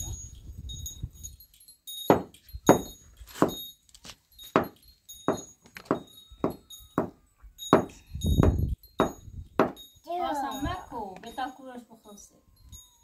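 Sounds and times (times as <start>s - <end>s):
faint metallic jingle: 0.0s - 13.0s
wooden cradle knocking: 4.6s - 9.8s.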